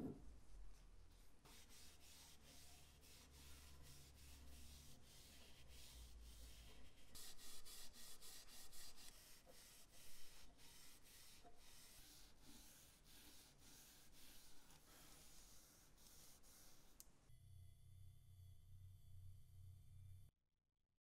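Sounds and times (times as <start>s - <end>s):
wipe rubbing wooden handle: 1.1s - 17.0s.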